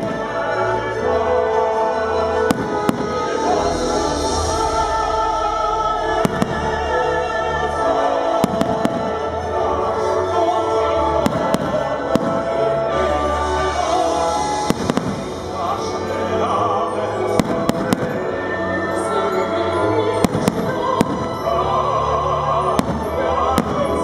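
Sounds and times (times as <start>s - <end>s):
loud music: 0.0s - 24.0s
fireworks bangs: 2.5s - 3.7s, 8.4s - 9.3s, 11.2s - 12.6s, 14.4s - 15.4s, 17.4s - 18.3s, 22.8s - 24.0s.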